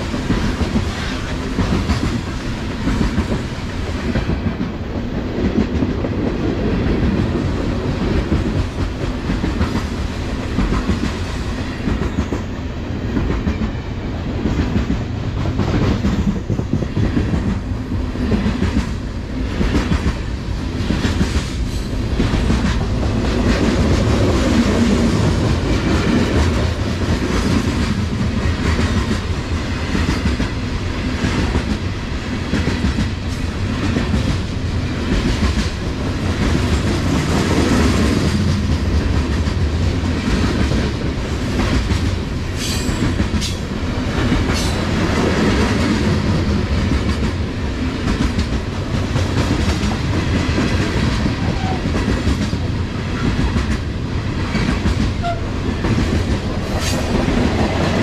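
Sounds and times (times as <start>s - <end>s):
train cars rumbling past: 0.0s - 58.0s.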